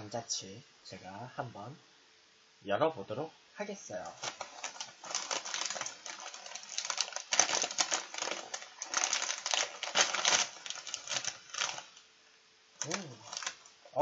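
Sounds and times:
chip bag crinkling: 0:04.0 - 0:12.1, 0:12.8 - 0:13.8.

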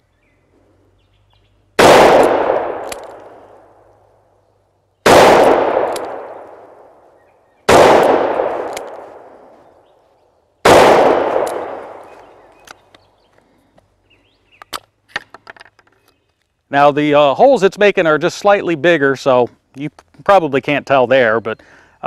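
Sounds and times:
revolver gunshots: 0:01.8 - 0:03.8, 0:05.0 - 0:09.5, 0:10.6 - 0:12.4.

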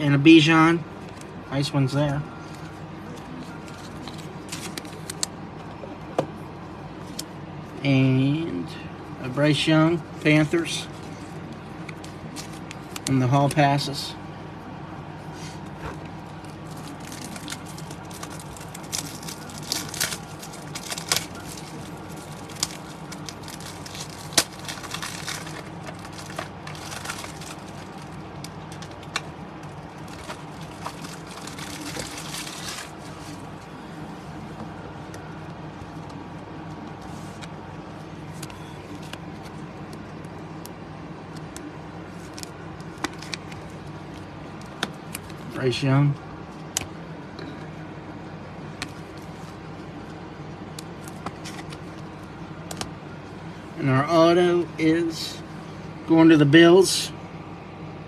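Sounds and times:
steady low hum: 0:00.0 - 0:58.0
foil wrappers crinkling: 0:03.4 - 0:05.3, 0:16.3 - 0:33.7.

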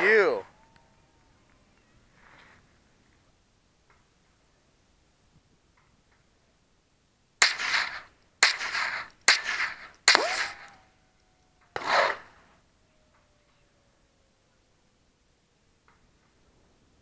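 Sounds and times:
rifle shots with echo: 0:07.4 - 0:10.8.

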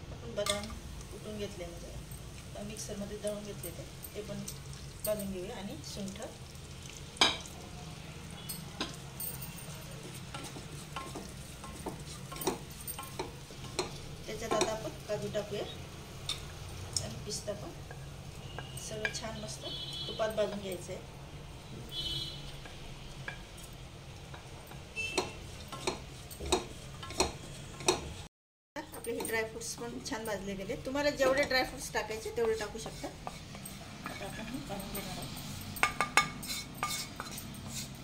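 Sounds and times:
spatula tapping and scraping a pan: 0:08.6 - 0:09.0, 0:10.0 - 0:15.0, 0:17.6 - 0:20.7, 0:21.9 - 0:28.2, 0:31.2 - 0:34.6, 0:35.8 - 0:38.0.

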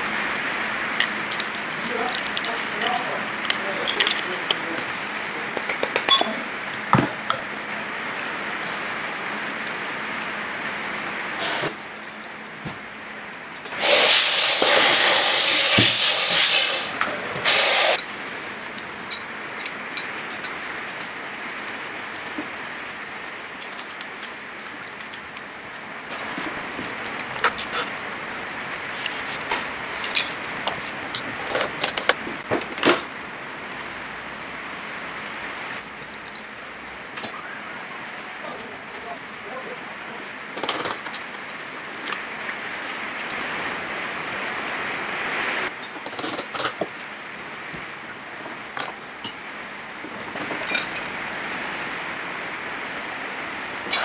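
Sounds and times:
workshop hiss: 0:00.0 - 0:54.0
metal tools clinking on engine block: 0:01.0 - 0:04.6, 0:05.7 - 0:06.5, 0:19.0 - 0:20.6, 0:28.6 - 0:32.1, 0:50.5 - 0:51.1
steady hiss: 0:13.7 - 0:19.7.

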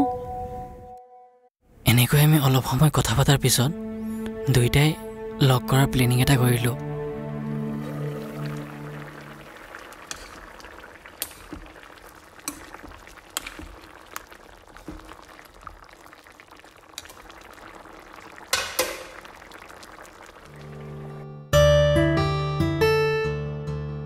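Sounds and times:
background music: 0:02.9 - 0:09.6, 0:20.5 - 0:24.0
curry sizzling and bubbling: 0:07.3 - 0:21.4
metal ladle scraping pan: 0:10.0 - 0:11.7.

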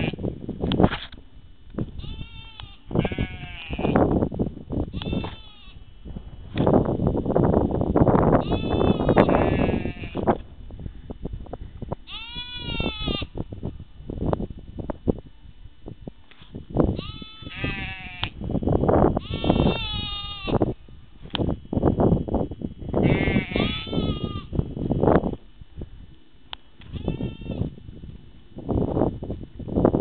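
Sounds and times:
low rumbling microphone noise: 0:00.0 - 0:30.0
sheep bleating: 0:02.0 - 0:04.0, 0:04.9 - 0:05.8, 0:08.4 - 0:10.2, 0:12.1 - 0:13.3, 0:17.0 - 0:18.3, 0:19.2 - 0:20.6, 0:23.0 - 0:24.5, 0:26.9 - 0:27.7.

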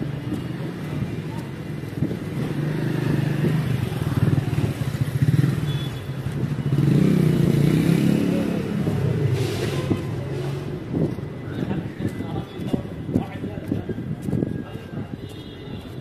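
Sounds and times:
car engines passing: 0:00.0 - 0:13.6.

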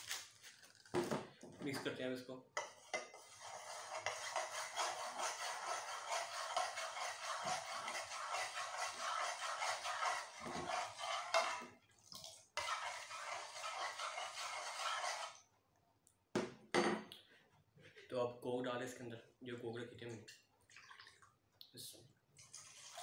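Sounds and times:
metal spoon scraping saucepan: 0:02.6 - 0:11.7, 0:12.6 - 0:15.4.

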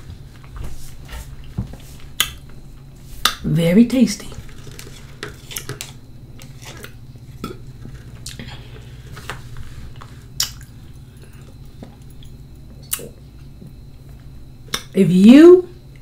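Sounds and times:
low hum: 0:00.0 - 0:16.0
spoon scraping plastic cup: 0:04.4 - 0:07.0
eating and lip sounds: 0:06.8 - 0:09.0, 0:09.9 - 0:13.5.

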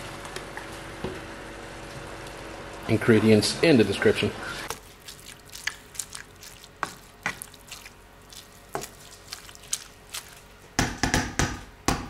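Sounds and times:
spoon stirring thick mixture: 0:04.7 - 0:11.0.

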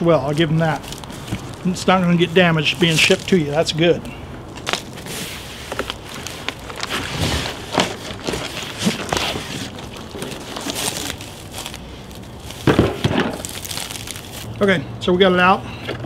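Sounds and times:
cardboard box rustling and scraping: 0:04.6 - 0:14.4.

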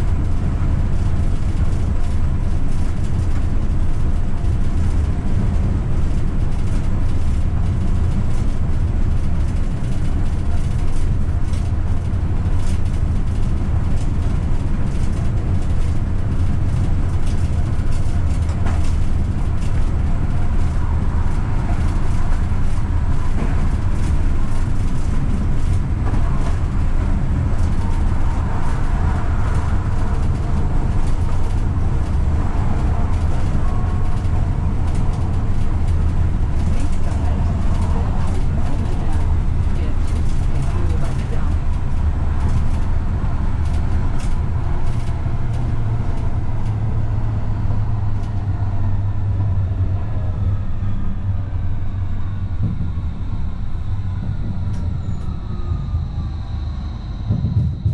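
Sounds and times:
wheels rumbling on rail: 0:00.0 - 0:57.9
faint whine: 0:46.2 - 0:57.9.

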